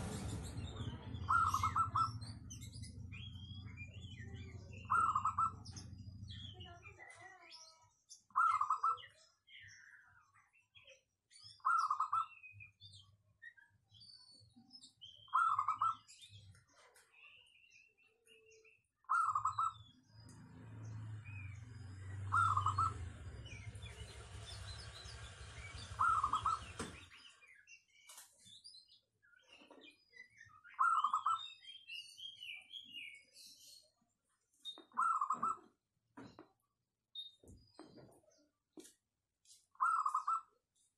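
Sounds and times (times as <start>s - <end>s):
low rumble: 0.0s - 6.6s
birds chirping: 0.0s - 40.9s
dove cooing: 1.3s - 2.1s, 22.3s - 23.0s, 25.9s - 26.8s.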